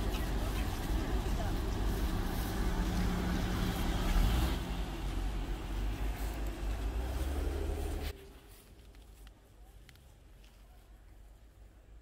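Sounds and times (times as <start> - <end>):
car engine idling: 0.0 - 8.1.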